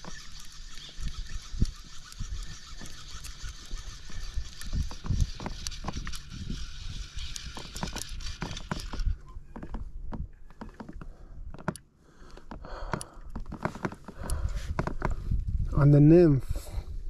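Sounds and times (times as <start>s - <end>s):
fly reel clicking: 0.0s - 9.2s
wind on microphone: 0.0s - 10.4s, 14.2s - 17.0s.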